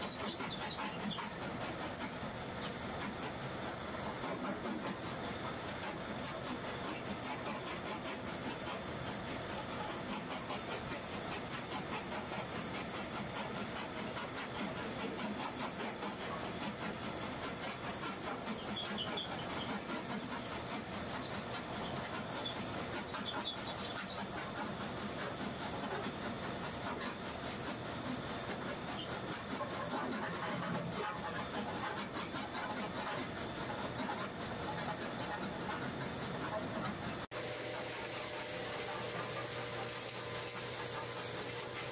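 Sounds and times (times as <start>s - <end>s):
ore mill mechanical clatter: 0.0s - 41.9s
hiss of water and slurry: 37.1s - 41.9s.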